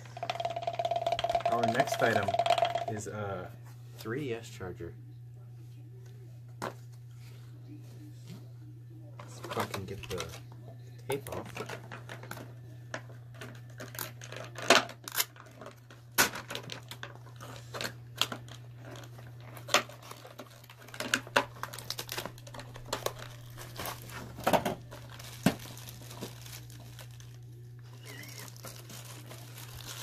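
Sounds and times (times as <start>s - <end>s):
plastic bag crinkling: 0.2s - 2.9s, 16.8s - 30.0s.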